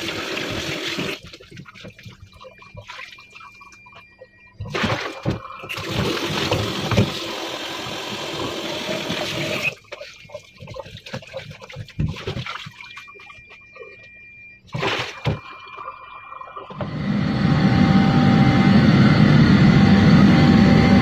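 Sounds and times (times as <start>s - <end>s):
tap water running into colander: 0.0s - 2.9s, 5.7s - 13.0s
vegetables stirred in water: 9.8s - 13.4s.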